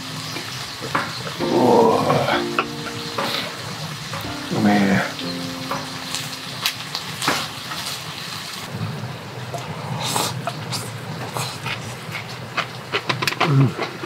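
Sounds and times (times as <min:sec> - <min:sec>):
offal sizzling in a frying pan: 0:04.0 - 0:08.7.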